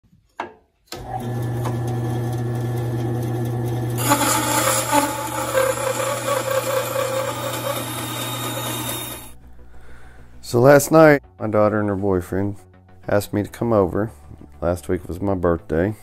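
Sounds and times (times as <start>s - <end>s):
bandsaw blade cutting wood: 1.0s - 9.4s
bandsaw motor hum: 1.0s - 9.4s.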